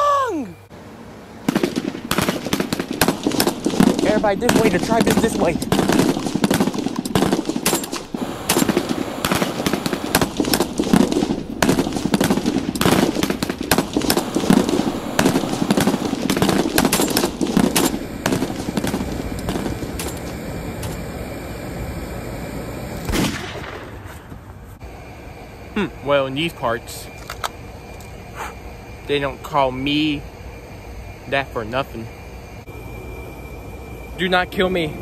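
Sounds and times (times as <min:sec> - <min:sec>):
rapid volleys of sharp bangs: 0:01.5 - 0:20.3
sharp crack: 0:01.5 - 0:21.0, 0:23.0 - 0:24.2.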